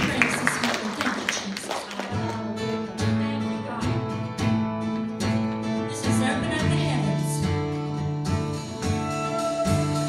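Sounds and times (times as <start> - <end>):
electric guitar: 1.5 - 10.0
strummed acoustic guitar: 2.0 - 10.0.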